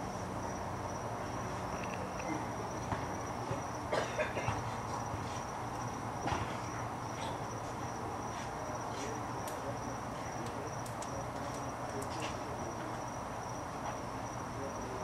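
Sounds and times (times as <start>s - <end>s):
night insects trilling: 0.0s - 15.0s
faint ticks: 10.4s - 12.1s.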